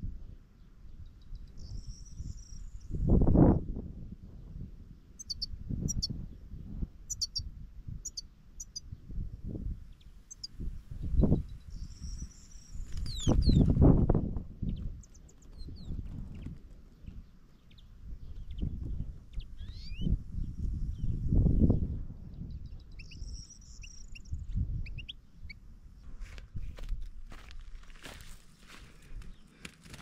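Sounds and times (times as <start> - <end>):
wind buffeting microphone: 0.0 - 8.2, 8.8 - 25.2, 26.0 - 30.0
finches chirping: 1.0 - 3.0, 5.2 - 6.3, 7.1 - 8.9, 9.9 - 13.7, 14.6 - 20.2, 22.4 - 25.6.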